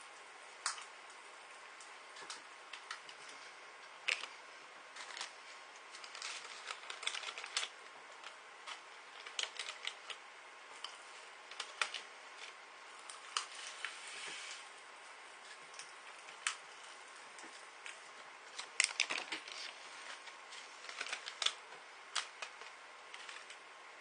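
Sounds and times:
popping candy crackling: 1.8 - 13.6, 17.4 - 23.7.

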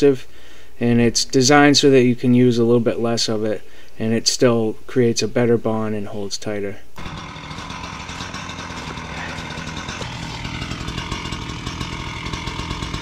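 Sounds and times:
small petrol engine droning: 7.0 - 13.0.

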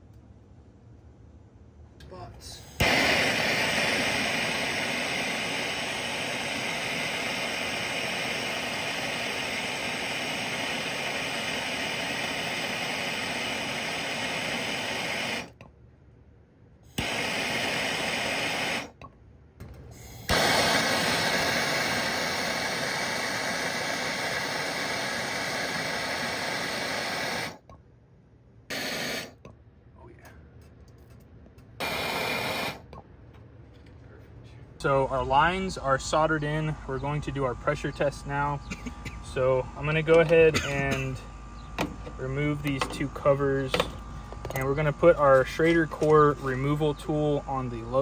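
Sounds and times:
gas torch flame hissing: 2.4 - 15.6, 16.8 - 19.0, 19.9 - 27.7, 28.7 - 29.5, 31.8 - 32.9, 35.1 - 48.0.

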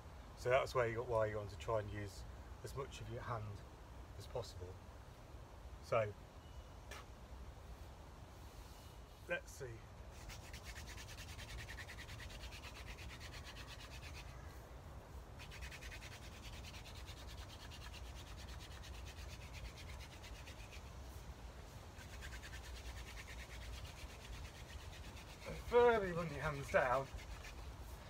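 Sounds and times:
hands rubbing wooden shaft: 10.1 - 14.6, 15.2 - 28.0
wooden spindle rasping on board: 10.3 - 14.3, 22.0 - 27.7.

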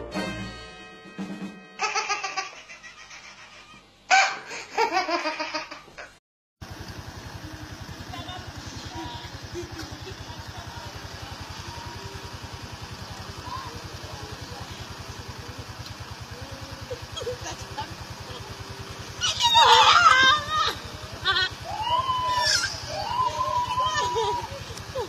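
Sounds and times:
baby laughing: 1.8 - 6.1, 19.2 - 21.5
low pulsing hum: 6.7 - 25.0
faint voices: 7.4 - 25.0.

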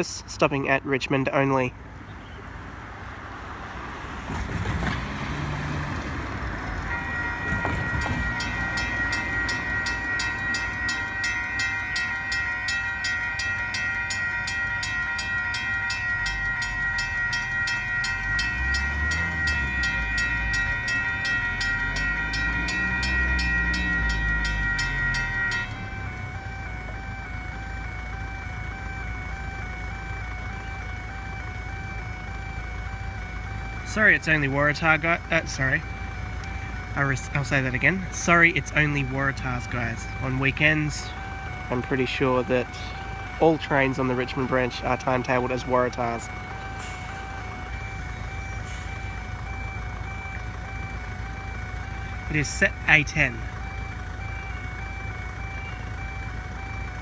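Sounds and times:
electric train motors whining: 6.0 - 27.1
level crossing bells clanging: 6.6 - 27.2, 32.9 - 54.4
steady electronic tone: 6.8 - 27.1.

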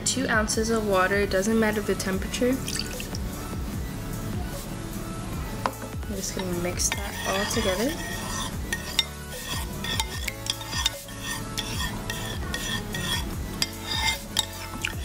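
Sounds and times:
spoon scraping ceramic bowl: 6.3 - 15.0.

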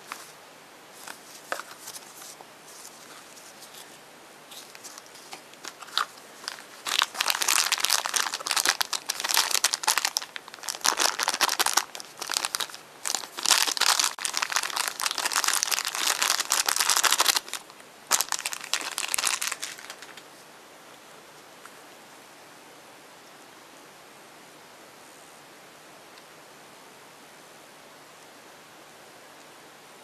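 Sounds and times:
plastic wrapper crinkling: 1.0 - 20.3.

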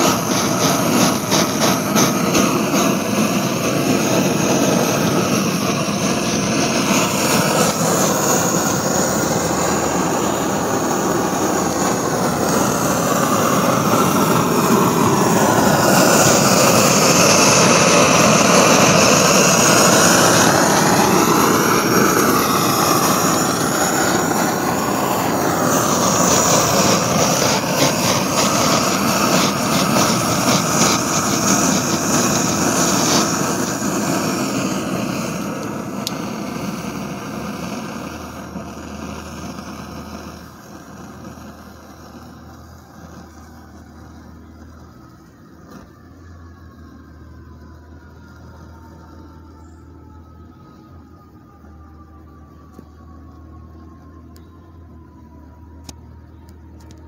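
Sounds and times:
burner flame jet rushing: 0.0 - 49.2.

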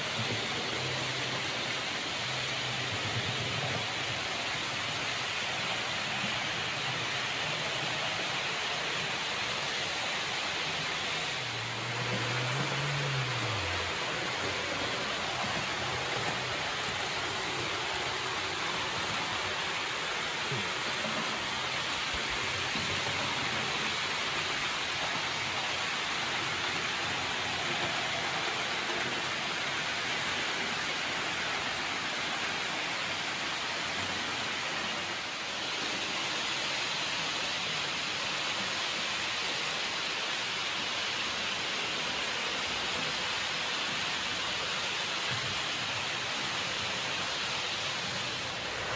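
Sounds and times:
model train wheels on rails: 0.0 - 38.4.

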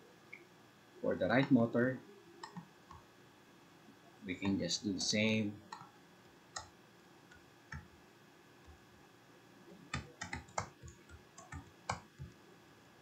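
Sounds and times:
computer keyboard keys clicking: 9.9 - 12.3.

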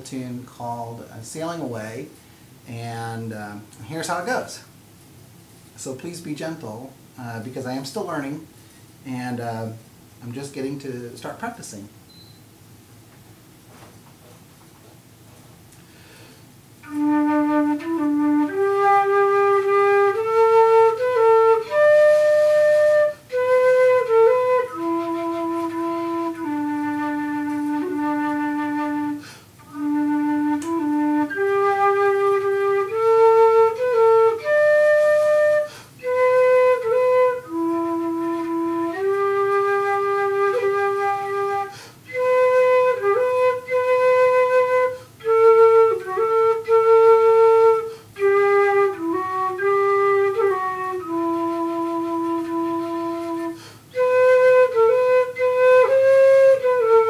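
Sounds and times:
flute playing slow melody: 16.8 - 57.0.

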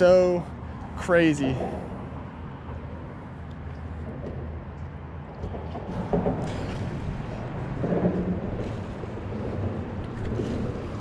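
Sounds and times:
wind noise on microphone: 5.4 - 11.0.

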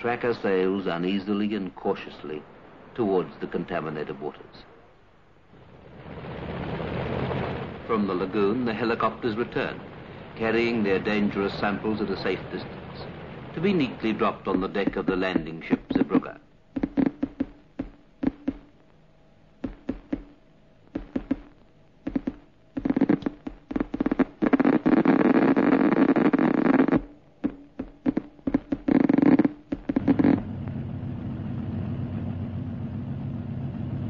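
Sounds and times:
engine sputtering and popping: 5.6 - 18.7, 20.9 - 34.0
engine drone with low hum: 29.3 - 34.0.

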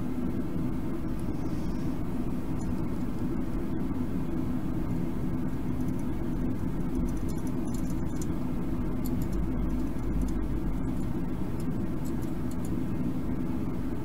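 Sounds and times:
low hum and rumble: 0.0 - 14.0.

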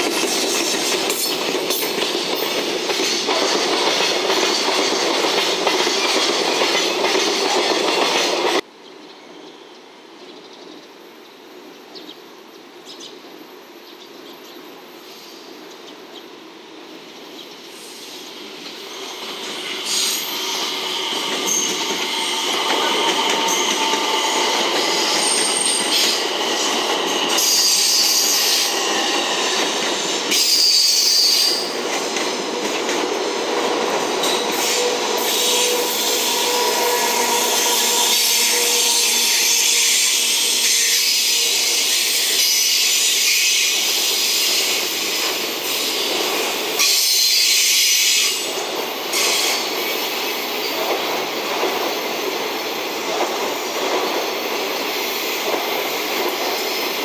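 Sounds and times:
train wheels rolling on rails: 0.0 - 8.7, 16.8 - 57.0
high-pitched wheel squeal: 19.0 - 29.4, 34.2 - 43.6.

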